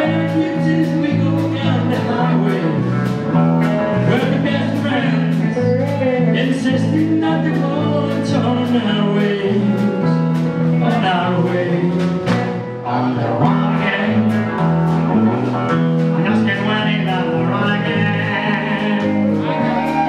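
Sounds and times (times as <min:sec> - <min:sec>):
country band playing: 0:00.0 - 0:20.0
man singing: 0:00.0 - 0:20.0.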